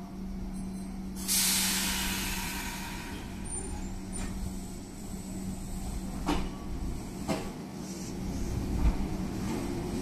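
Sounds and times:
electric train humming: 0:00.0 - 0:10.0
air hiss of brakes releasing: 0:01.2 - 0:06.0.

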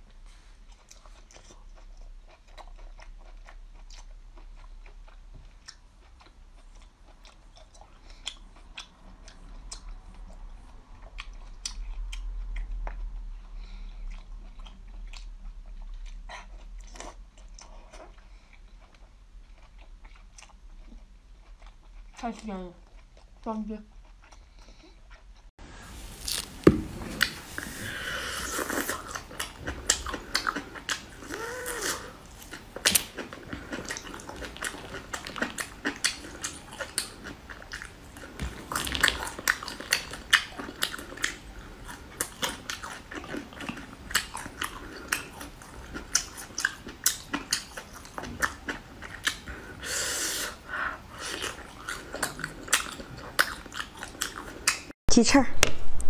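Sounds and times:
person chewing and biting food: 0:00.1 - 0:22.2, 0:22.8 - 0:54.9.

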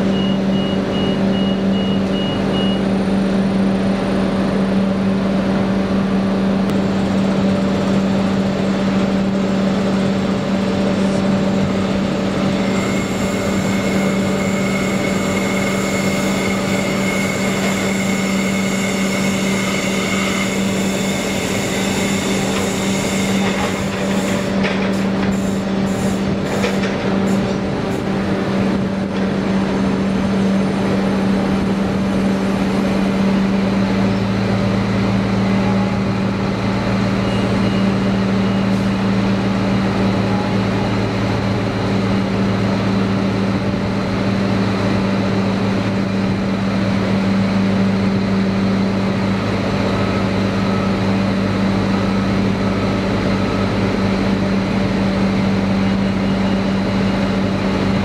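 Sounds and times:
low engine note: 0:00.0 - 0:22.7, 0:23.3 - 0:58.0
diesel railcar idling hum: 0:00.0 - 0:58.0
train clicks and rattles: 0:12.7 - 0:30.0.

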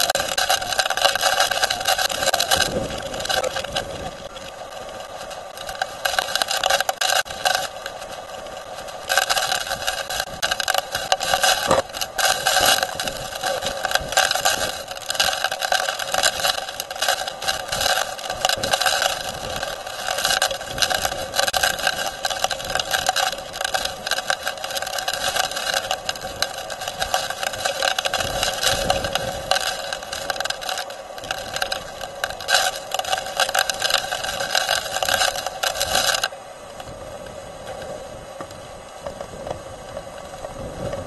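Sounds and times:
rain pelting windshield: 0:00.0 - 0:41.0
wind gusting against vehicle: 0:01.8 - 0:05.2, 0:33.0 - 0:41.0.

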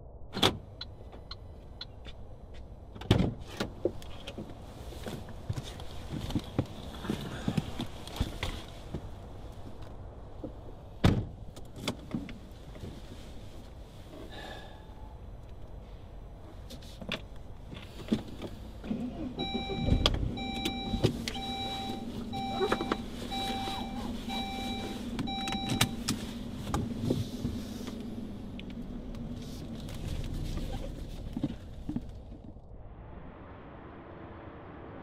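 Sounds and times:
car warning chime beeping: 0:19.4 - 0:26.2.

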